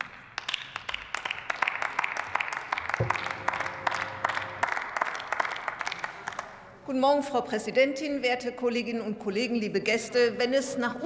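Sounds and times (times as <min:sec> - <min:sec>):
scattered applause: 0:00.0 - 0:06.8
low hum with faint tone: 0:02.9 - 0:08.1.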